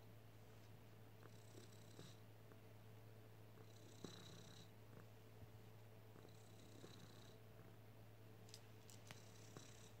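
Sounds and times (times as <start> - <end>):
cat purring: 1.2 - 2.6, 3.5 - 7.9, 9.0 - 10.0.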